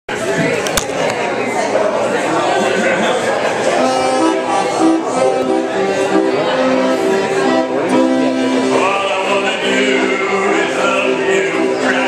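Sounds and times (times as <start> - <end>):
accordion playing chords: 2.8 - 12.0.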